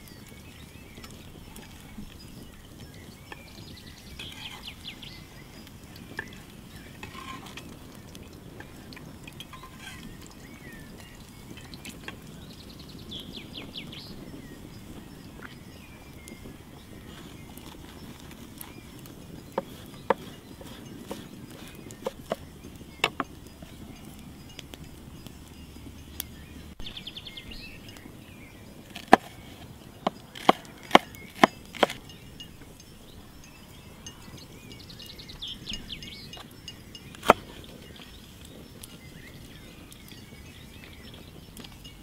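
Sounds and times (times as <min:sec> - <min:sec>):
knife chopping on wooden board: 0:30.4 - 0:32.0.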